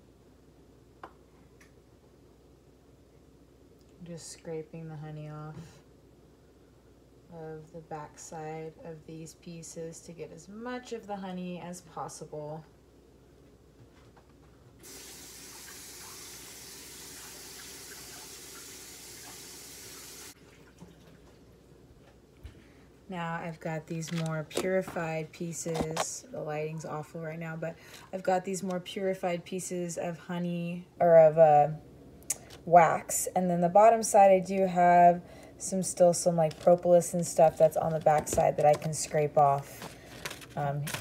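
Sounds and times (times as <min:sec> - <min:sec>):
kitchen tap running: 0:14.8 - 0:21.2.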